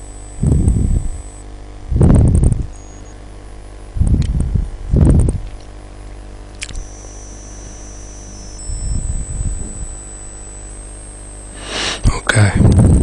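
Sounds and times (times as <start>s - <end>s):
mains hum: 0.0s - 13.0s
soft low rumbles: 0.4s - 3.2s, 3.9s - 5.7s
single click: 6.5s - 6.9s
background hiss: 6.5s - 12.7s.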